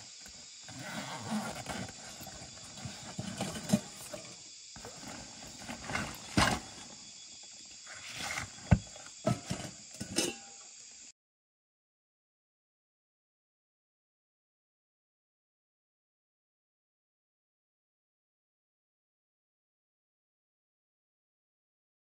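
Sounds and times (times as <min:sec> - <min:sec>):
backpack rustling: 0:00.3 - 0:07.0
metal pot knocks and clinks: 0:09.3 - 0:10.6.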